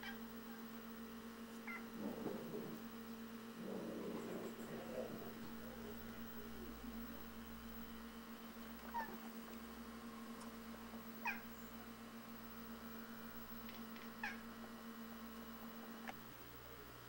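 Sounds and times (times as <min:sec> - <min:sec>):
cat chattering chirps: 0:01.6 - 0:01.9, 0:11.2 - 0:11.5.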